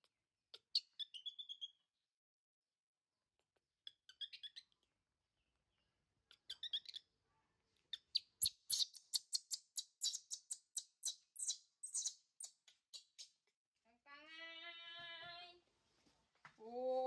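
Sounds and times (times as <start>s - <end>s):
baby monkey squealing: 0.5s - 1.7s, 3.8s - 4.8s, 6.3s - 7.1s, 7.9s - 13.3s.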